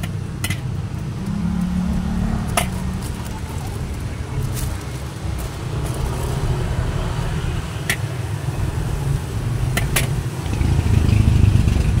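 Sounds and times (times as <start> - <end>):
low engine rumble: 0.0 - 12.0
plastic bags crackling: 2.4 - 6.7.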